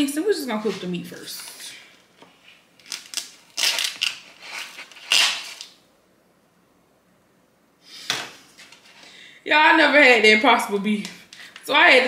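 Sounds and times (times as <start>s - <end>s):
plastic package crinkling: 1.3s - 5.8s.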